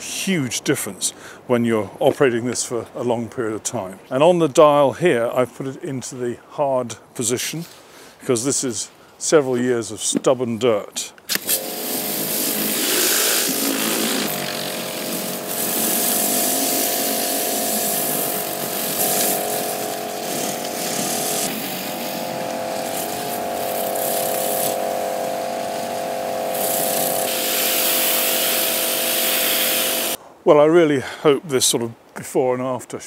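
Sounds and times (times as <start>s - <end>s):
high-pressure water hissing on stone: 11.3s - 30.2s
pressure washer motor hum: 11.3s - 30.2s.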